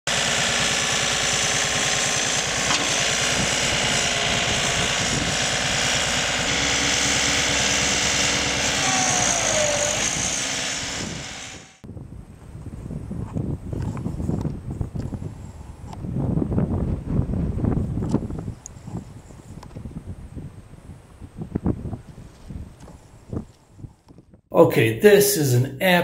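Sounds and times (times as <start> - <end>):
short falling whine: 0.1 - 11.8
tractor diesel engine running: 0.1 - 11.8.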